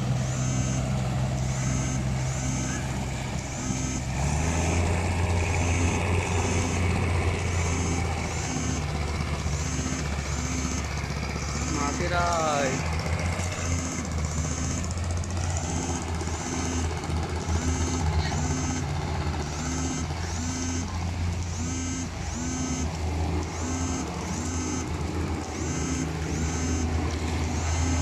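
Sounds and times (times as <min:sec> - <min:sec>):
boat engine droning: 0:00.0 - 0:28.0
short repeating chirp: 0:00.2 - 0:04.8, 0:09.5 - 0:12.8.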